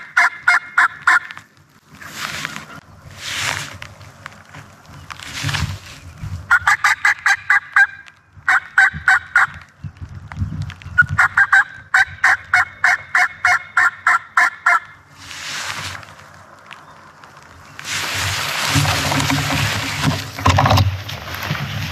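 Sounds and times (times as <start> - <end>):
turkey yelping: 0.0 - 1.4, 6.5 - 9.6, 11.1 - 15.0.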